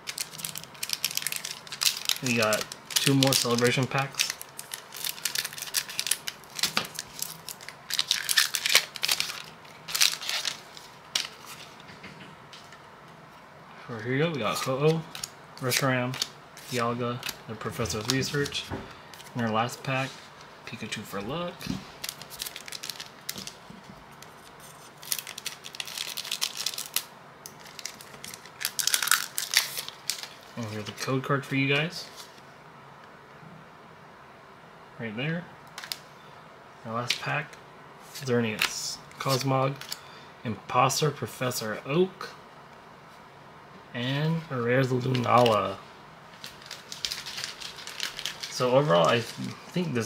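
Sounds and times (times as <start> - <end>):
foil wrapper tearing and crinkling: 0.0 - 11.4, 22.0 - 23.6, 24.2 - 30.5, 46.4 - 49.5.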